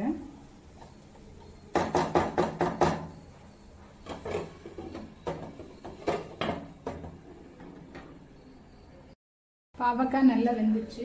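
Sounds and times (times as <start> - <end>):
wooden spatula scraping a pan: 3.2 - 8.0.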